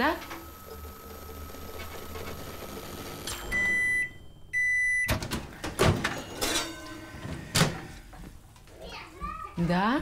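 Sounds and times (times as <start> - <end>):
microwave oven humming: 0.0 - 5.6.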